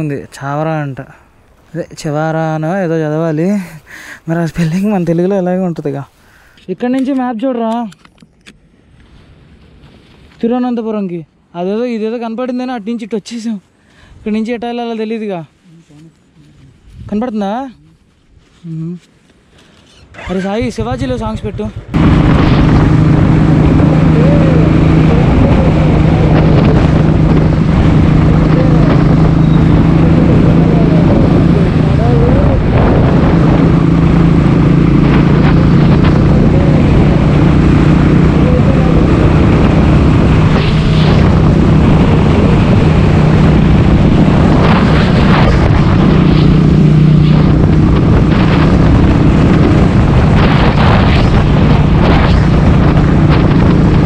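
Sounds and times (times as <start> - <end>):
wind rush on microphone: 16.7 - 17.6, 20.0 - 54.0
motorcycle engine drone: 21.8 - 54.0.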